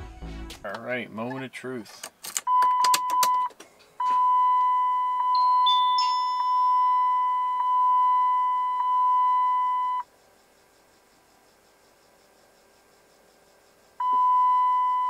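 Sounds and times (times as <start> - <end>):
dashboard warning chime: 2.5 - 10.0, 14.0 - 15.0.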